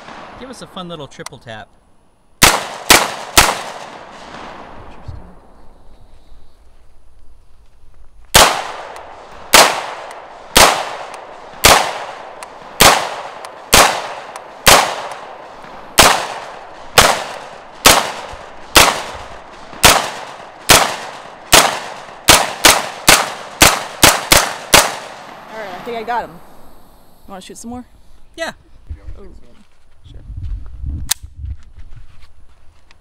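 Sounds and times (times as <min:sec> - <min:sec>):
pistol shots: 0:02.4 - 0:04.7, 0:08.3 - 0:25.5.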